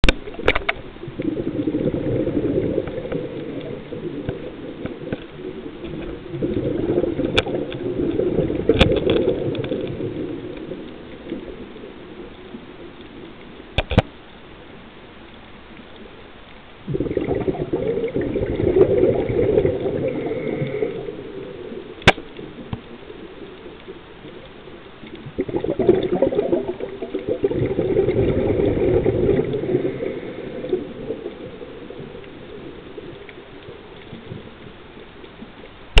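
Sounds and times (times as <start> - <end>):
diver exhaling bubbles underwater: 0.0 - 10.6, 16.8 - 21.7, 25.2 - 32.8
sharp click: 13.8 - 14.1, 22.0 - 22.3
quiet inhalations: 19.8 - 22.0, 29.5 - 32.0.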